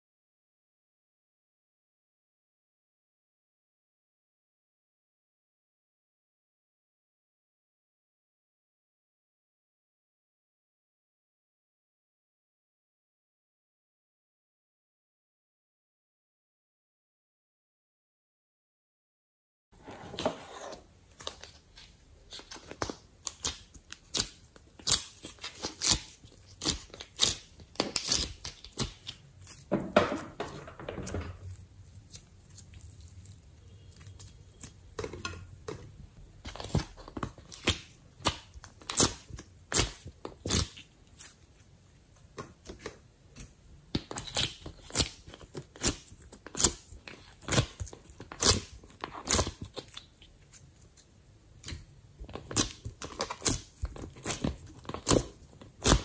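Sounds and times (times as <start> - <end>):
slime squelching and crackling: 21.2 - 29.7, 31.0 - 35.1, 36.2 - 56.0.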